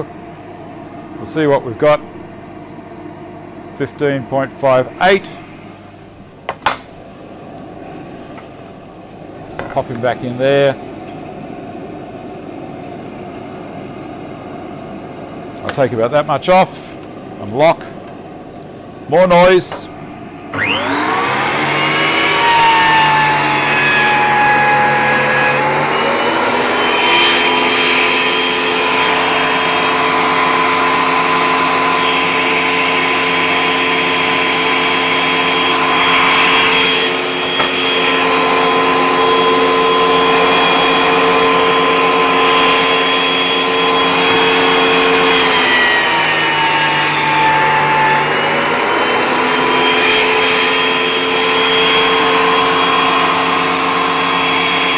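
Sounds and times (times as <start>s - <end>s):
dust extractor running: 19.4s - 54.9s
thickness planer running: 19.4s - 54.9s
board passing through planer: 20.5s - 54.9s.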